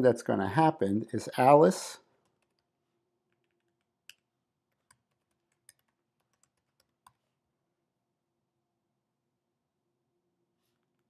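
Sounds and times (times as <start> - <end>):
keyboard typing: 2.2 - 2.7, 3.3 - 7.2.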